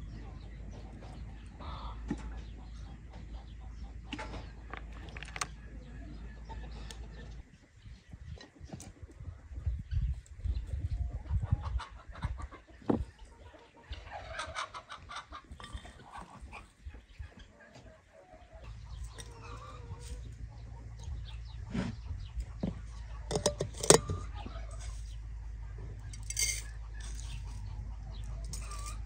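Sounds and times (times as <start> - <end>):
chickens clucking: 0.0 - 29.0
sharp clicks and knocks: 22.6 - 24.3.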